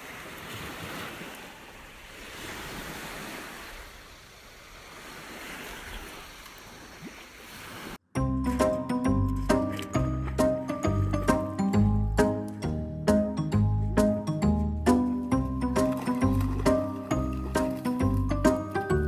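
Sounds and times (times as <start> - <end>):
small waves washing on beach: 0.0 - 8.0
music: 8.1 - 19.0.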